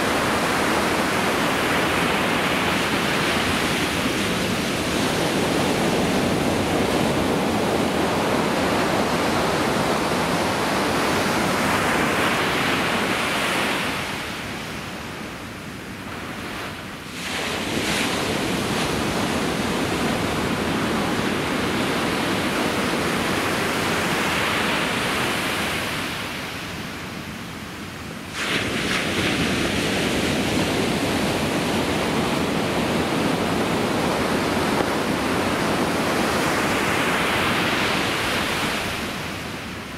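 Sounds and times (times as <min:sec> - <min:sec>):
ocean surf breaking: 0:00.0 - 0:15.2, 0:16.0 - 0:27.0, 0:27.9 - 0:39.9.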